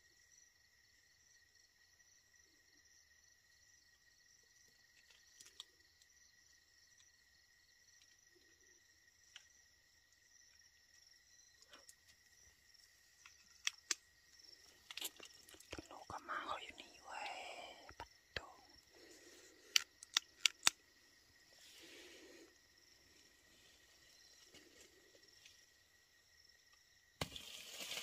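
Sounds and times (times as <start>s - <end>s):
night insects trilling: 0.0s - 28.0s
sharp clicks: 13.3s - 14.0s, 19.6s - 20.8s.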